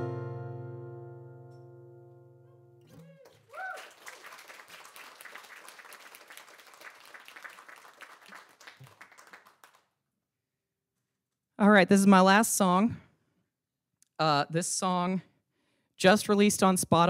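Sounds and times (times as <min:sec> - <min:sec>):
acoustic guitar chord ringing: 0:00.0 - 0:02.8
person whooping: 0:02.9 - 0:04.2
audience applauding: 0:02.9 - 0:09.9.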